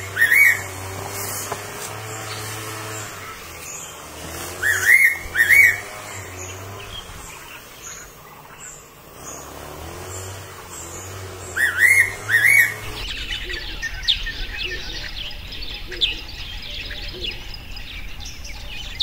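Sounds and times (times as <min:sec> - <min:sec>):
faint high bird chirps: 0:00.0 - 0:19.0.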